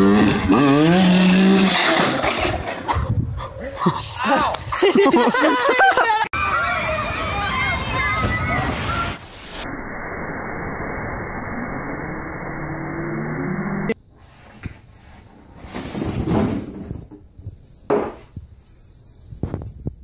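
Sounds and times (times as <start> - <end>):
water spray rushing: 6.4 - 9.6.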